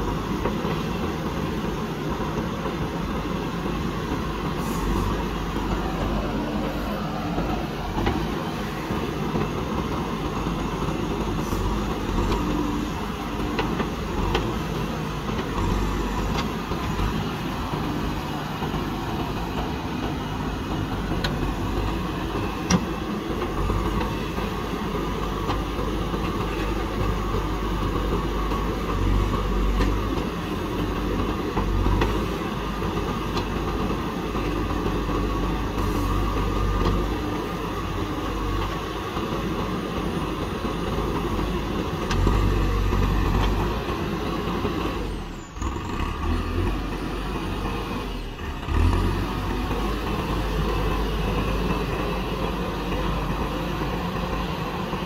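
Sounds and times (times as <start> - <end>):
diesel engine under load: 0.0 - 55.0.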